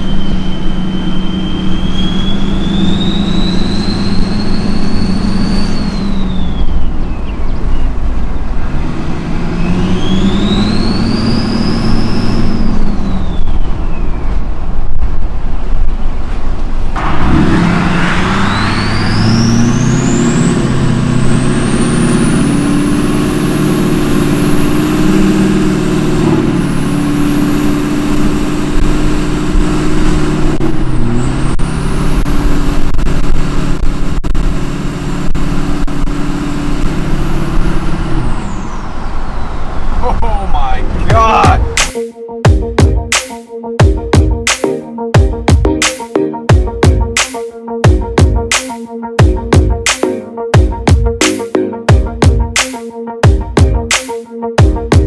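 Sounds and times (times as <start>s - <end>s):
turbo whistle: 0.0s - 7.0s, 9.6s - 14.0s
diesel engine drone: 0.0s - 55.0s.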